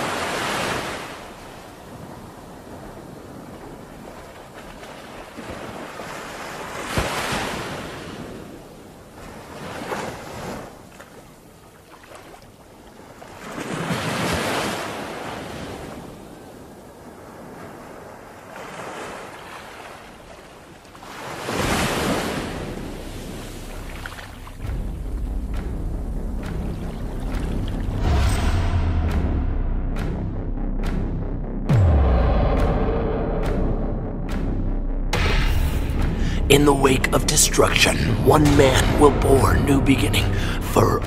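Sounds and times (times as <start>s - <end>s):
surf washing onto shore: 0.0s - 10.9s, 13.3s - 24.7s.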